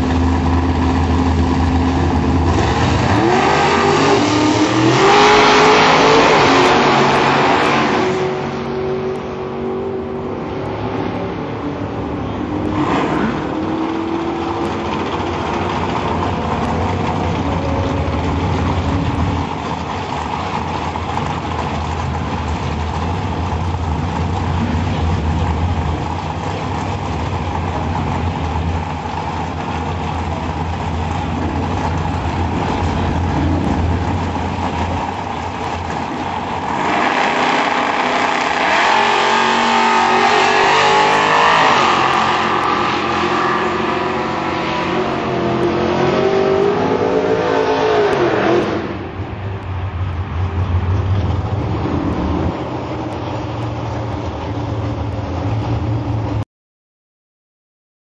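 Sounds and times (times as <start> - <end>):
race car engines idling: 0.0 - 5.0, 8.3 - 38.6, 48.8 - 56.4
race car engines accelerating: 0.0 - 56.4.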